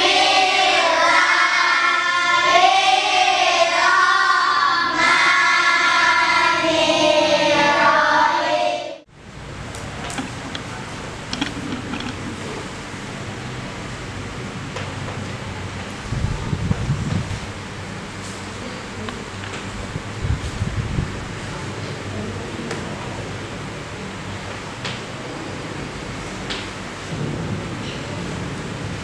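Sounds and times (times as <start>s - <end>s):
children singing together: 0.0s - 9.1s.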